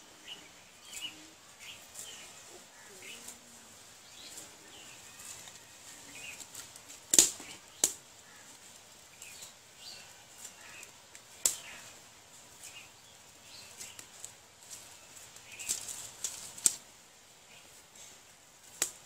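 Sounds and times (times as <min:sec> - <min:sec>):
wood fire crackling and popping: 0:06.4 - 0:08.4, 0:10.6 - 0:11.8, 0:15.3 - 0:16.9.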